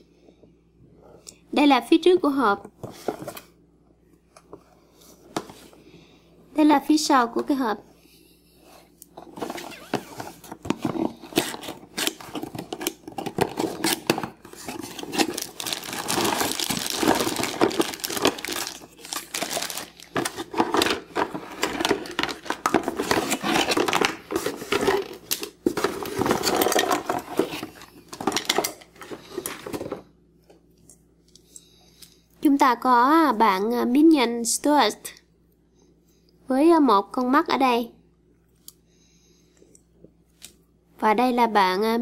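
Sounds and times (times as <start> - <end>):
packaging rustling and crinkling: 9.3 - 30.0
plastic toy parts clattering: 10.2 - 30.0.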